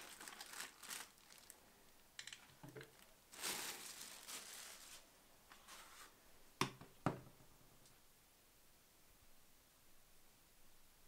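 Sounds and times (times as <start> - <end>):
plastic bag crinkling: 0.0 - 1.6, 2.2 - 5.1
plastic parts knocking on wooden desk: 6.6 - 7.4.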